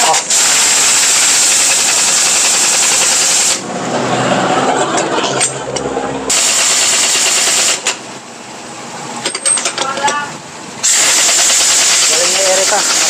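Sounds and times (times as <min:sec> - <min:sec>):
air hiss: 0:00.0 - 0:03.6.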